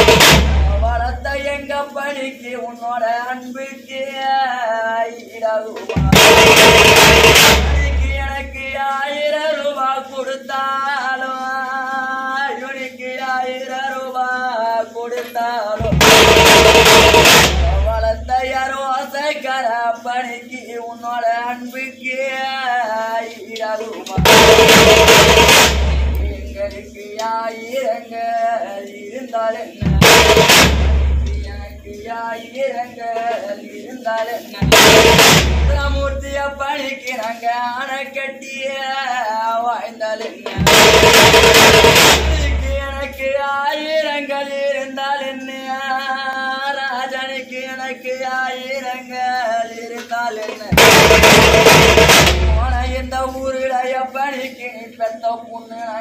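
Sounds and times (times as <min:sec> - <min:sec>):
stick-beaten side drum: 0:00.0 - 0:01.6, 0:05.8 - 0:08.8, 0:15.2 - 0:18.8, 0:23.8 - 0:27.0, 0:29.8 - 0:32.1, 0:34.2 - 0:37.3, 0:40.2 - 0:43.4, 0:50.0 - 0:53.6
man singing a lament: 0:00.0 - 0:06.8, 0:07.6 - 0:30.5, 0:31.1 - 0:51.5, 0:52.3 - 0:56.0
person singing a lament: 0:31.2 - 0:34.8, 0:42.2 - 0:50.8.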